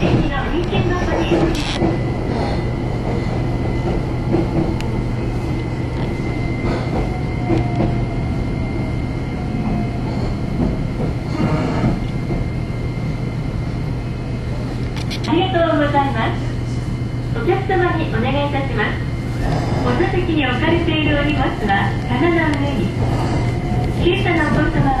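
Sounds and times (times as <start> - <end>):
track knocks: 0.0 - 2.1, 10.5 - 12.6, 22.0 - 25.0
train wheels rumbling on rail: 0.0 - 25.0.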